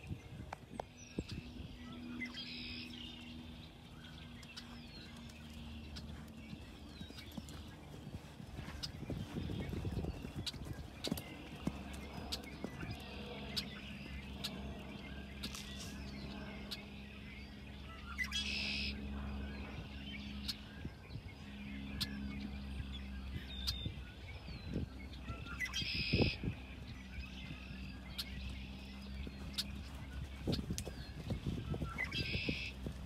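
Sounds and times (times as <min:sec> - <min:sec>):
birds chirping and singing: 0:00.0 - 0:33.0
steady low hum: 0:00.0 - 0:33.0
buzzy bird trills: 0:21.4 - 0:33.0.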